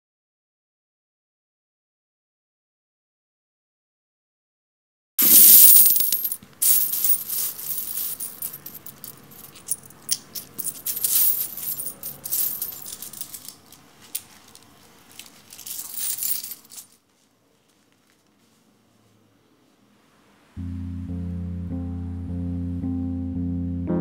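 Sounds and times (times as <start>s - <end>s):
coins clinking and jingling: 5.2s - 17.0s.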